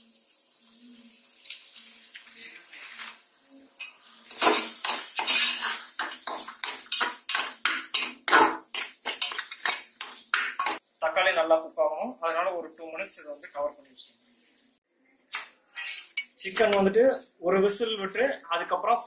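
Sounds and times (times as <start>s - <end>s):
faint sizzle: 0.0s - 18.4s
metal spatula scraping a pot: 3.8s - 10.8s, 15.7s - 16.9s.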